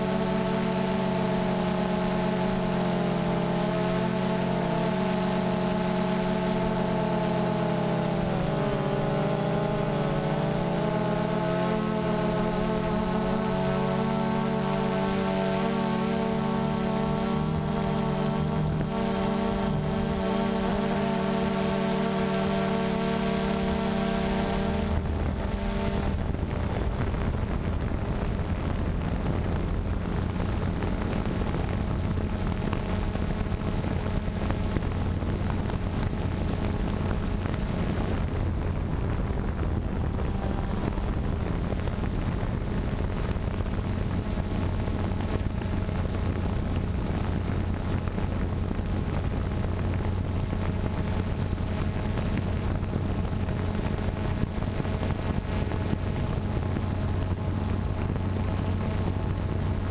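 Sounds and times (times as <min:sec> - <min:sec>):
drone propellers humming: 0:00.0 - 0:59.9
wind noise on microphone: 0:12.3 - 0:59.9.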